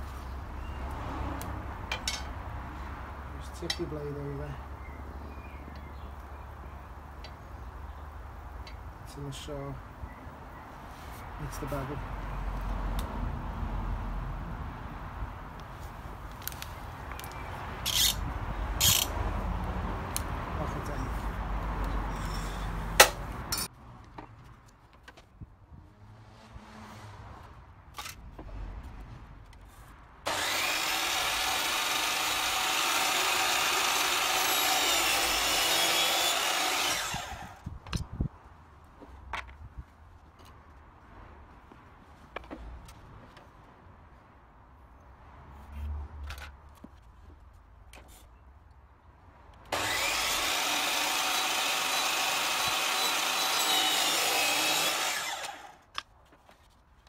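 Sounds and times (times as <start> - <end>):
mitre saw cutting board: 30.3 - 37.6, 49.8 - 55.8.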